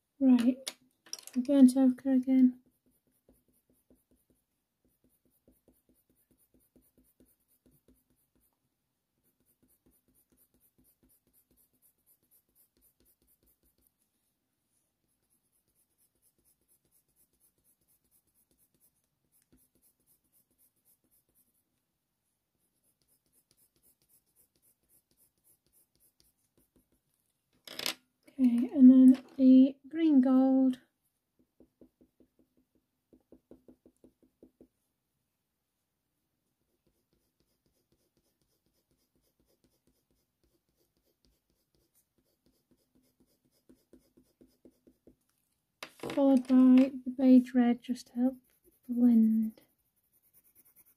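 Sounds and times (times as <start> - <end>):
pencil scratching on paper: 2.1 - 21.8, 22.6 - 27.2, 36.7 - 45.3, 47.6 - 50.9.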